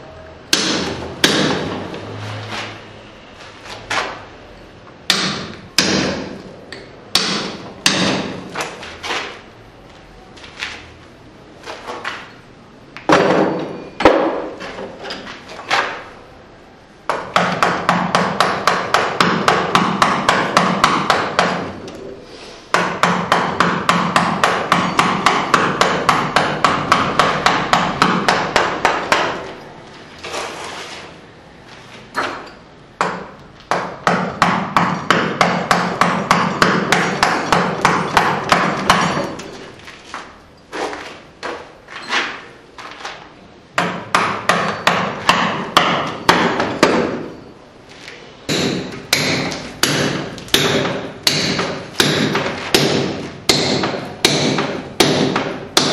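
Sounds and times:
hammer striking chisel into stone: 0:00.5 - 0:01.8, 0:05.1 - 0:08.8, 0:17.1 - 0:21.7, 0:22.7 - 0:29.5, 0:32.2 - 0:39.6, 0:43.8 - 0:47.5, 0:48.5 - 0:55.9.

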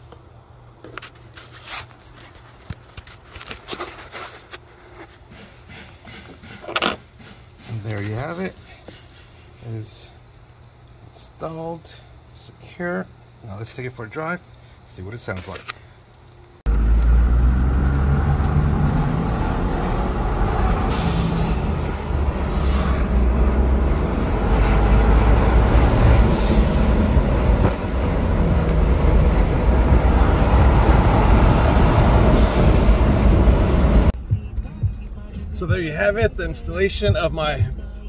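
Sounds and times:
car engine driving: 0:16.7 - 0:34.2.

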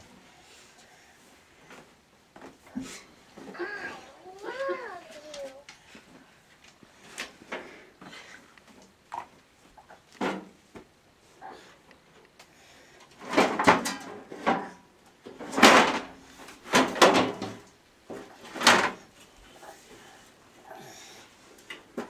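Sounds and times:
metal baking pans clattering: 0:13.2 - 0:17.6.

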